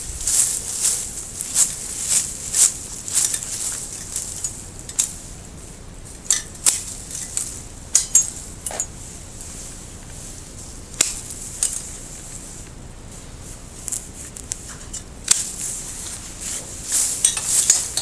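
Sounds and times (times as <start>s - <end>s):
leaves and branches rustling: 0.0s - 18.0s
pruning shears snipping: 0.3s - 5.2s, 6.3s - 8.9s, 10.9s - 11.9s, 13.8s - 18.0s.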